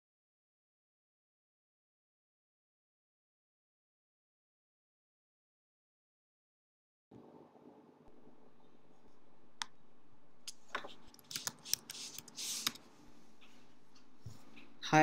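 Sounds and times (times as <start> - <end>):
low steady hum: 7.2 - 11.4, 12.0 - 15.0
keyboard and mouse clicks: 10.4 - 12.8.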